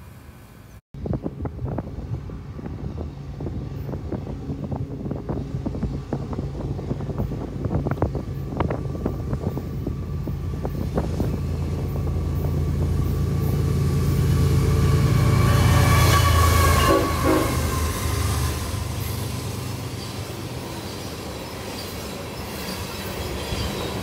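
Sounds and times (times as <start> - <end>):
diesel locomotive engine drone: 0.0 - 24.0
wind noise on microphone: 1.0 - 19.8.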